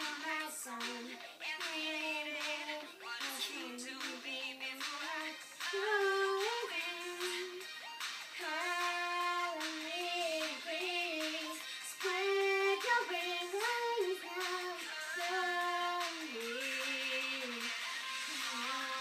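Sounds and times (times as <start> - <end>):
girl singing into toy microphone: 0.0 - 7.7, 8.4 - 19.0
backing music: 0.0 - 19.0.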